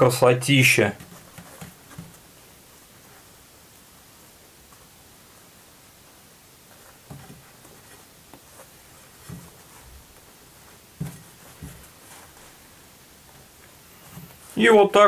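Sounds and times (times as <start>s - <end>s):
light rustling: 6.6s - 14.6s
soft dull knocks: 11.0s - 12.3s.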